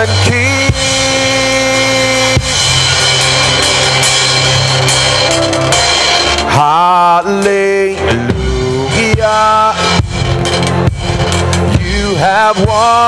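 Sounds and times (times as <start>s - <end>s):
man singing with vibrato: 0.0s - 4.0s, 6.4s - 10.1s, 11.7s - 13.0s
worship band playing: 0.0s - 13.0s.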